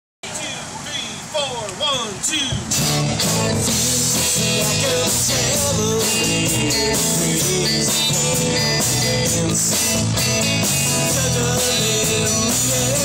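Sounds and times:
drums: 1.9s - 13.0s
keyboard: 2.5s - 13.0s
electric guitars: 2.7s - 13.0s.

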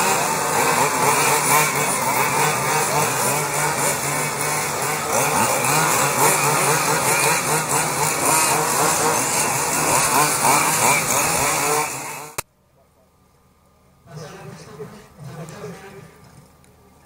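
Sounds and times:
rc car engines buzzing: 0.0s - 12.4s.

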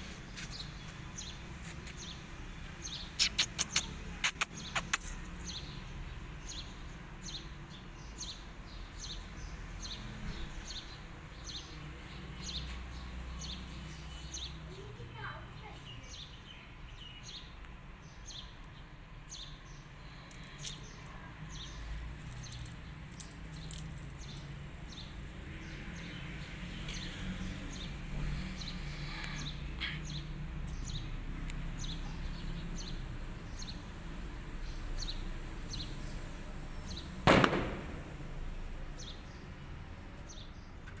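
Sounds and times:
small birds chirping: 0.0s - 41.0s
sharp bang: 37.3s - 38.3s.

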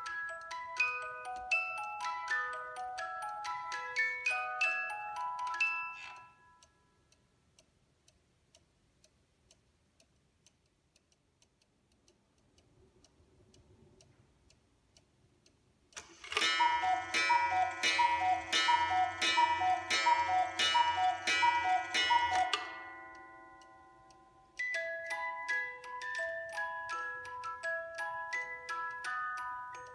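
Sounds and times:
music box melody: 0.0s - 7.1s, 16.0s - 29.9s
clock ticking: 0.0s - 29.9s.

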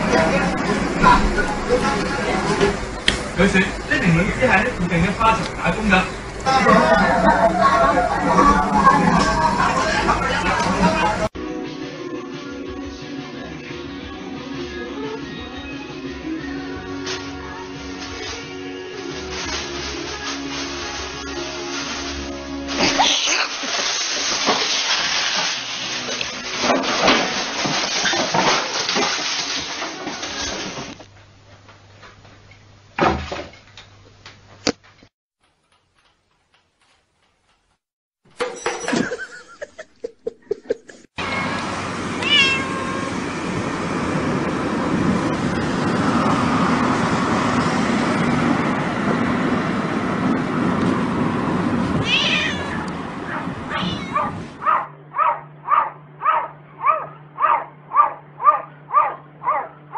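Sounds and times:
car road noise: 0.0s - 11.4s, 41.0s - 54.9s
cat meowing: 42.2s - 43.2s, 52.0s - 52.9s, 53.7s - 54.4s.

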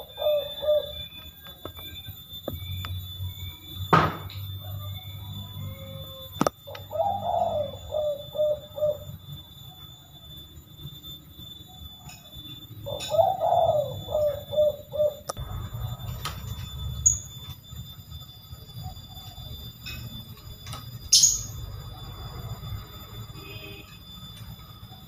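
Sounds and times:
dove cooing: 0.0s - 1.9s, 4.6s - 10.4s, 12.6s - 17.4s, 18.1s - 19.9s.

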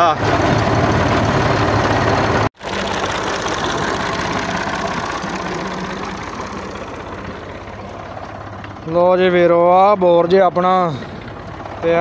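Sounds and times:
diesel tractor engine running: 0.0s - 12.0s.

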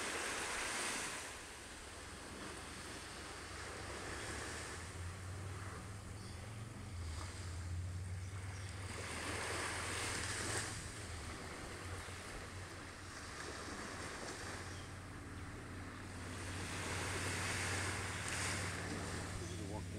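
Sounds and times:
surf washing on a beach: 0.0s - 19.9s
wind rumble on microphone: 0.0s - 19.9s.

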